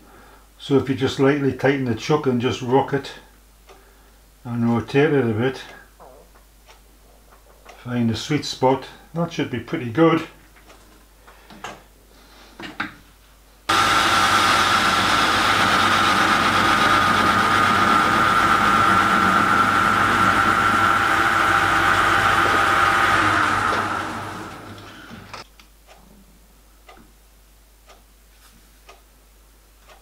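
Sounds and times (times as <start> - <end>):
lathe spinning down: 13.7 - 25.4
metal lathe whining: 13.7 - 25.4.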